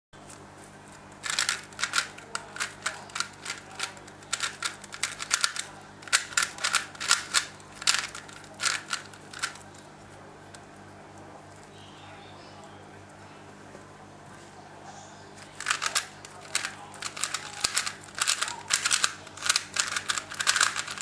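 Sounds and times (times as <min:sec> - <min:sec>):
puzzle cube plastic clicks: 0:01.2 - 0:09.7, 0:15.4 - 0:21.0.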